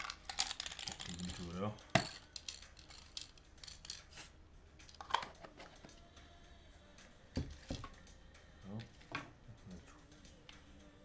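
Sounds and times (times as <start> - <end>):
small parts clicking and clinking: 0.0 - 4.1.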